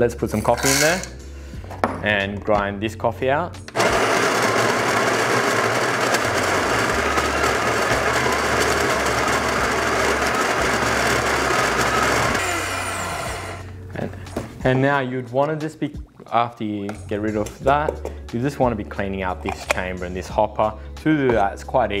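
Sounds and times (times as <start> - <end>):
coffee grinder whirring: 3.7 - 13.7.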